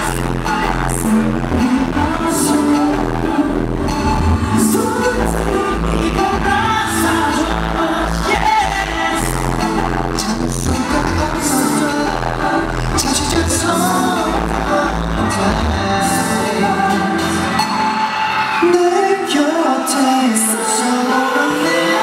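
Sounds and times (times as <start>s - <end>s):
pop song over sound system: 0.0s - 22.0s.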